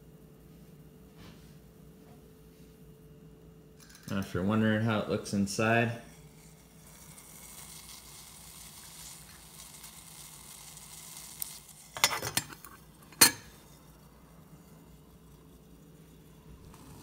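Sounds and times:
water hissing in pot: 5.4s - 17.0s.

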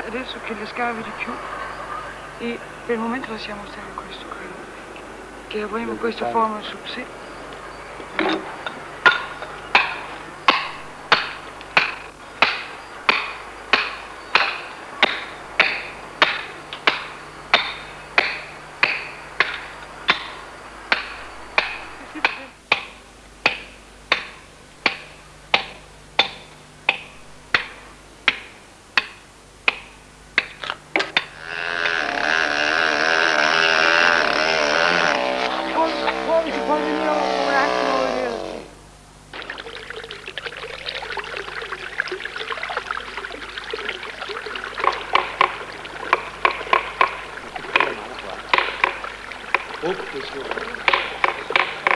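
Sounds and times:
hammer striking chisel on stone: 9.1s - 20.3s
machine drone: 31.2s - 39.4s.

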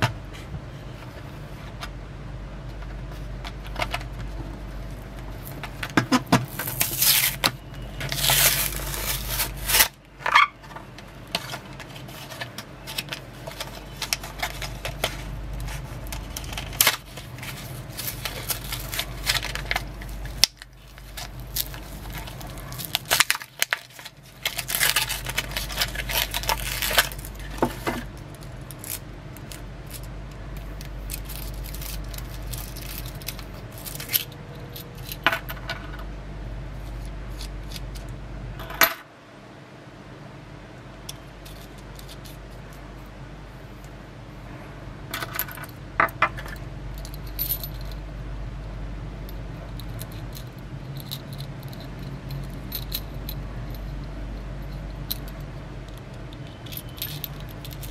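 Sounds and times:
packaging crinkling and tearing: 5.3s - 10.5s, 11.4s - 30.0s.

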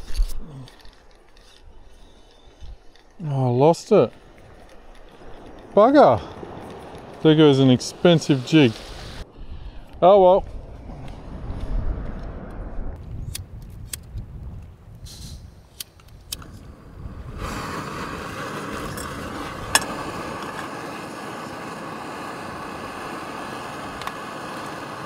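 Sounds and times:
gas burner hissing: 1.4s - 9.7s, 15.0s - 25.0s
stove igniter clicks: 19.0s - 20.7s.

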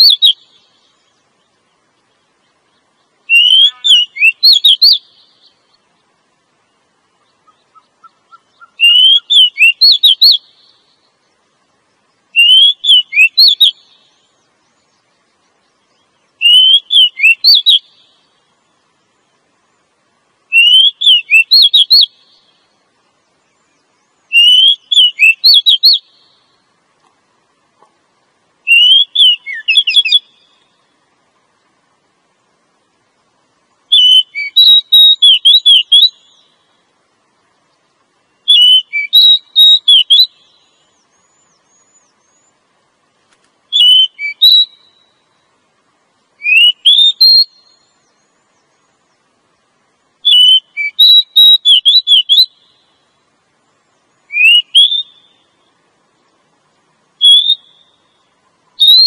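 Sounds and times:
bird whistling calls: 0.0s - 1.1s, 2.7s - 5.6s, 7.2s - 11.0s, 12.3s - 15.0s, 15.9s - 18.2s, 20.5s - 22.6s, 23.7s - 26.5s, 28.6s - 30.7s, 33.9s - 36.6s, 38.3s - 42.6s, 43.7s - 45.4s, 46.4s - 48.9s, 50.2s - 53.0s, 54.1s - 55.6s, 57.2s - 58.2s, 58.8s - 59.0s
faint rising bird notes: 0.0s - 53.2s.

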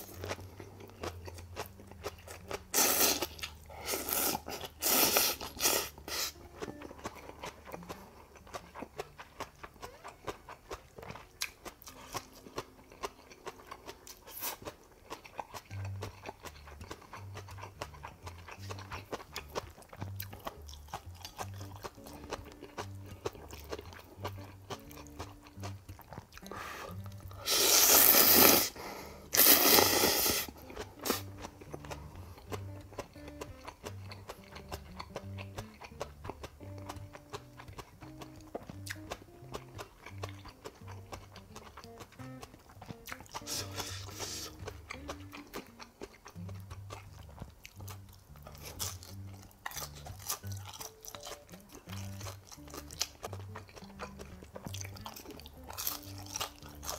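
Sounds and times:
soft background music with beat: 0.0s - 9.9s, 14.3s - 56.9s
person chewing: 0.0s - 56.9s
noodle slurps: 2.7s - 6.4s, 26.4s - 31.3s, 43.4s - 44.6s.

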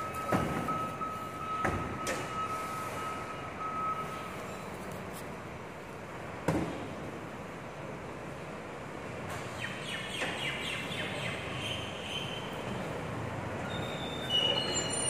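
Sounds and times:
distant recycling truck: 0.0s - 15.0s
high squeaks: 13.6s - 15.0s.

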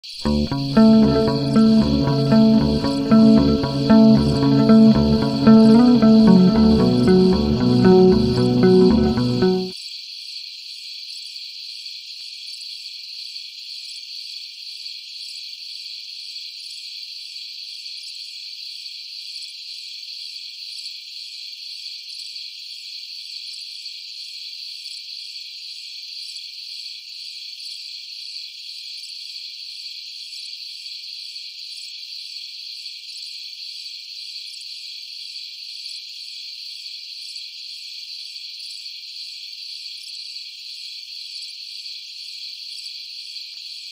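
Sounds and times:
insect chorus trilling: 9.8s - 43.9s.

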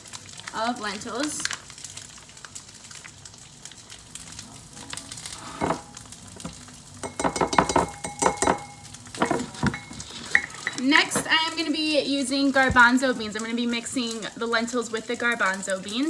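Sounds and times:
food sizzling in a frying pan: 0.0s - 16.0s
dish ringing: 7.0s - 10.7s.

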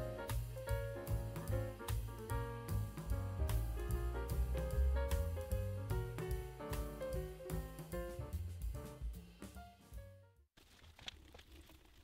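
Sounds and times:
low bass line: 0.0s - 9.0s
instrumental jazz music: 0.0s - 10.4s.

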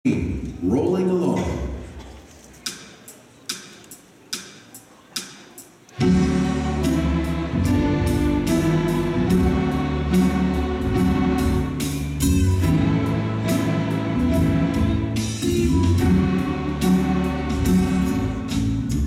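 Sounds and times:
string orchestra playing: 5.9s - 19.0s.

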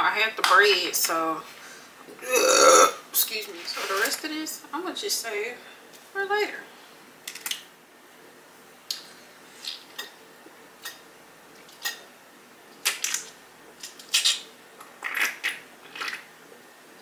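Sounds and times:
person gulping drink: 2.2s - 3.0s.

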